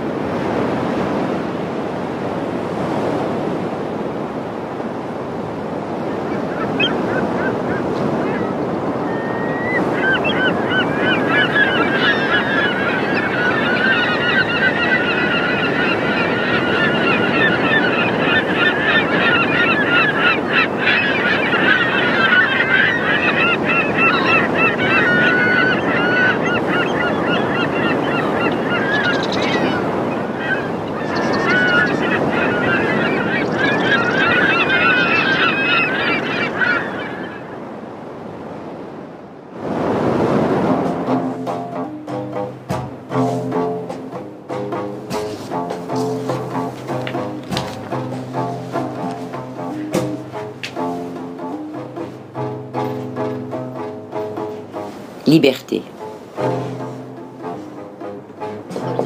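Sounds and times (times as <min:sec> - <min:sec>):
flock of birds calling: 0:05.2 - 0:38.1, 0:40.7 - 0:59.0.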